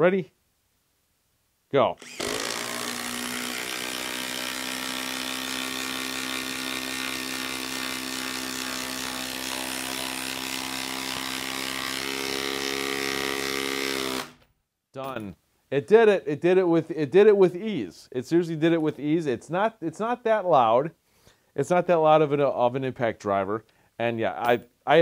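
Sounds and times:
impact driver hammering: 2.0s - 14.4s.

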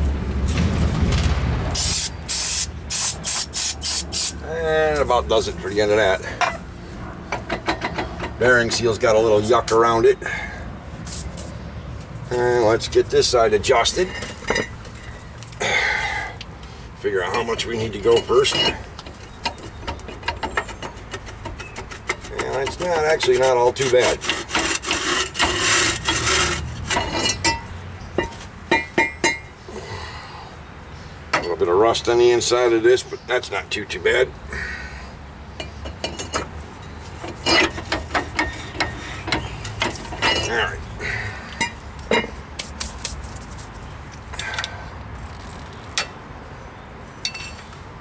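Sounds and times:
brake rotor scraping and grinding: 4.1s - 29.7s, 34.5s - 46.3s
metallic clinks: 47.2s - 47.7s.

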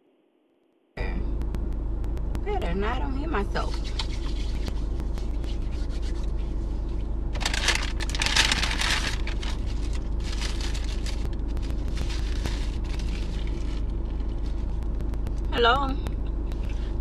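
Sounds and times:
low hum of car cabin: 1.0s - 17.0s
fingers rubbing on phone microphone: 3.4s - 7.1s.

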